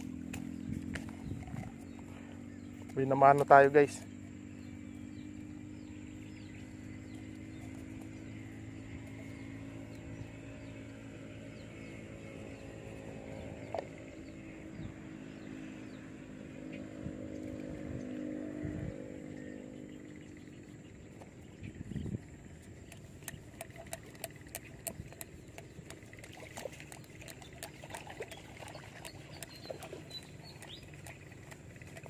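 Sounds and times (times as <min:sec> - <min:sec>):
distant engine humming: 0:00.0 - 0:32.0
sharp tick: 0:22.8 - 0:26.1.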